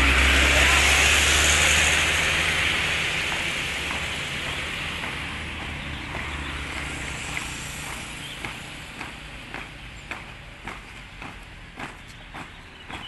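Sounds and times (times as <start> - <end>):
steady hiss: 1.5 - 10.5
marching footsteps in step: 1.6 - 13.0.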